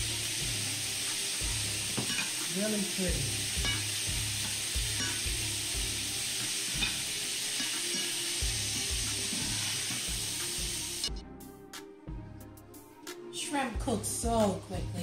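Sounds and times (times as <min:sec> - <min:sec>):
shrimp sizzling in butter: 0:00.0 - 0:11.1.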